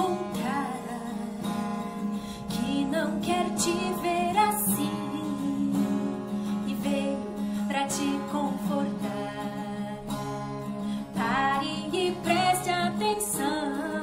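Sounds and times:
strummed acoustic guitar: 0:00.0 - 0:14.0
woman singing: 0:00.0 - 0:14.0.

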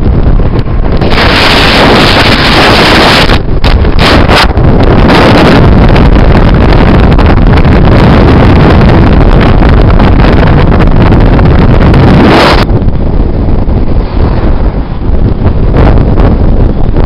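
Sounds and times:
car moving at speed: 0:00.0 - 0:17.0
wind buffeting microphone: 0:00.0 - 0:17.0.

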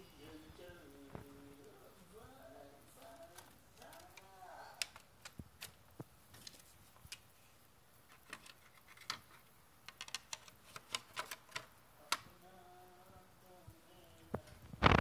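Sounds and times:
plastic and metal parts clicking: 0:08.1 - 0:12.3.

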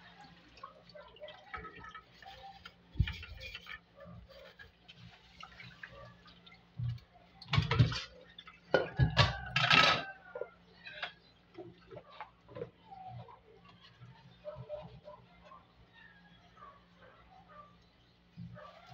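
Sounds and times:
water splashing and dripping: 0:00.0 - 0:09.6
metal pot knocking against sink: 0:08.7 - 0:10.5.

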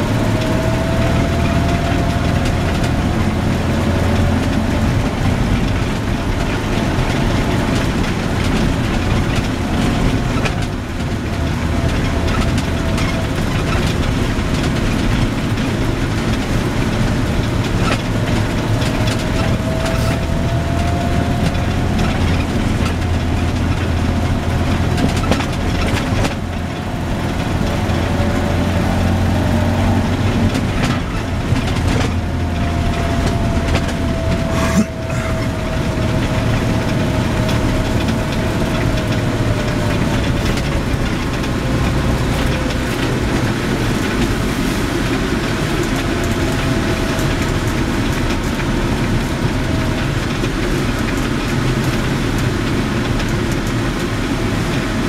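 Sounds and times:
car engine running: 0:00.0 - 0:55.0
road noise inside car: 0:00.0 - 0:55.0.

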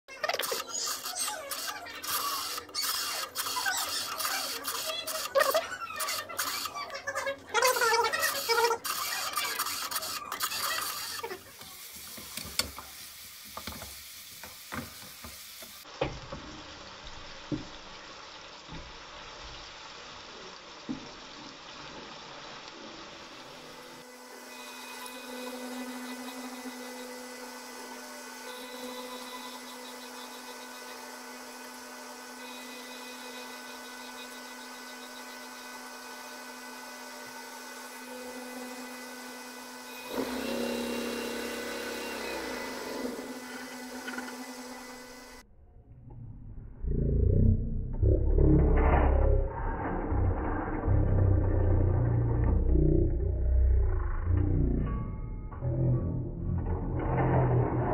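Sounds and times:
washing machine humming: 0:00.1 - 0:45.4
rotary telephone dial turning: 0:00.3 - 0:06.9, 0:08.0 - 0:11.3
onions frying: 0:07.6 - 0:25.7.

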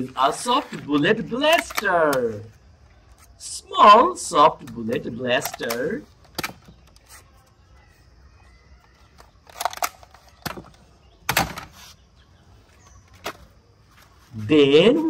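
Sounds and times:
plastic toy guns clicking: 0:01.5 - 0:02.2, 0:04.6 - 0:07.0, 0:09.1 - 0:10.6.

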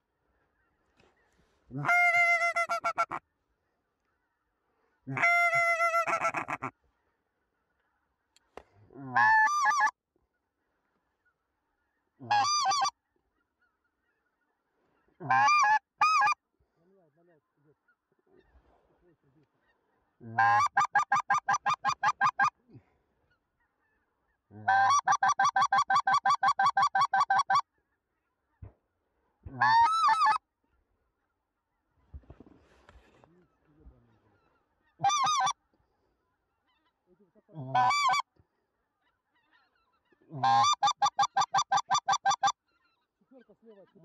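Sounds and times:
goose call honks and clucks: 0:00.5 - 0:03.3, 0:05.0 - 0:06.8, 0:08.5 - 0:10.0, 0:11.1 - 0:16.4, 0:17.2 - 0:28.7, 0:29.4 - 0:30.5, 0:32.9 - 0:44.0.

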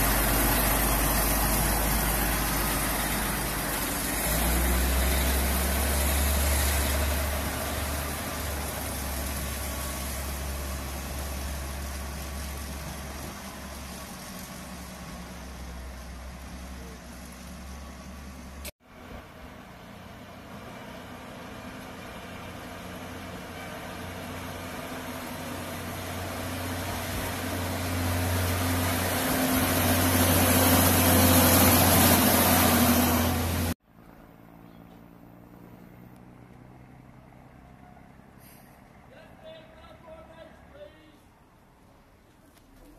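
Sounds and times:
diesel locomotive engine running: 0:00.0 - 0:33.8.

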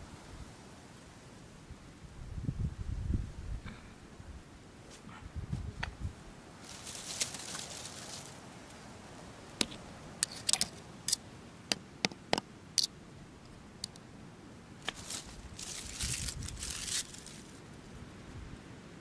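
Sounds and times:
dry leaves and twigs rustling: 0:06.5 - 0:11.2, 0:14.8 - 0:18.3
dry wood snapping: 0:14.8 - 0:17.5.

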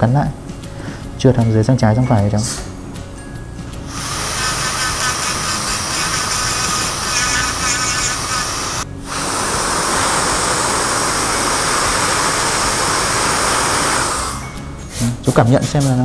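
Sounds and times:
dental equipment airy hiss: 0:03.8 - 0:15.2.

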